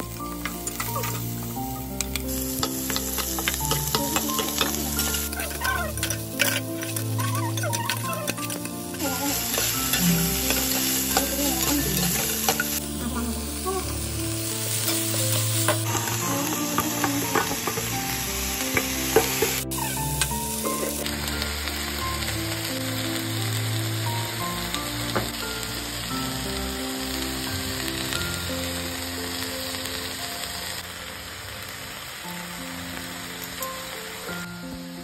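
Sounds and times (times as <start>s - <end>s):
vegetables sizzling in oil: 0.0s - 35.0s
spatula scraping a pan: 2.1s - 12.9s.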